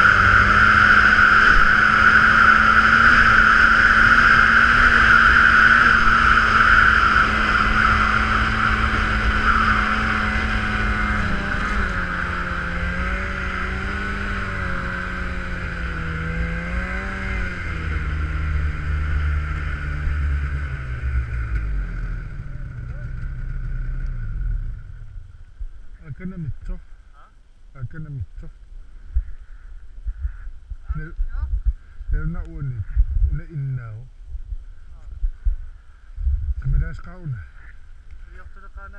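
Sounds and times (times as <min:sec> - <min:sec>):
snowmobile engine with high whine: 0:00.0 - 0:38.9.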